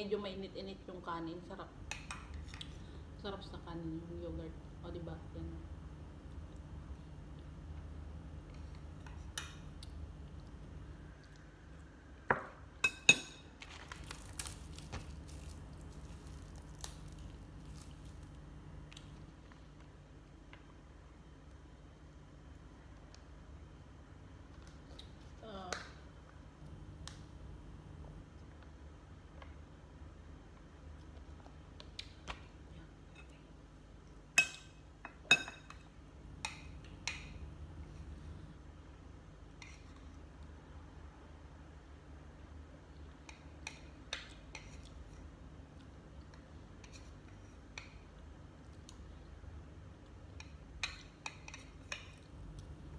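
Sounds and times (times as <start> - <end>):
plastic bag crinkling: 13.6 - 18.2.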